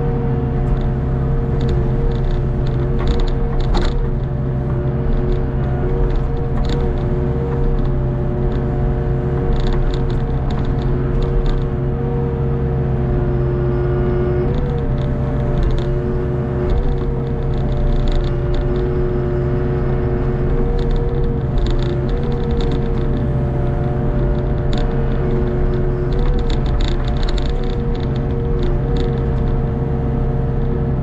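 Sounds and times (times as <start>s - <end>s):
excavator diesel engine running: 0.0s - 31.0s
hydraulic whine: 0.0s - 31.0s
faint clicks and clanks: 0.6s - 8.6s, 20.4s - 23.4s, 24.1s - 29.6s.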